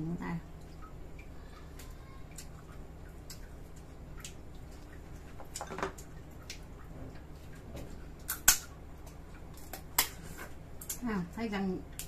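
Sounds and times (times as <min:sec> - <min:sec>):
crab shell cracking: 0:08.2 - 0:10.2.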